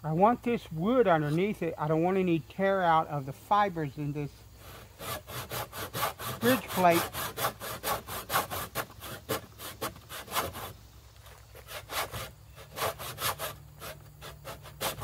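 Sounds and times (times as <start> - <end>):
saw cutting wood: 4.6 - 10.8, 11.5 - 15.0.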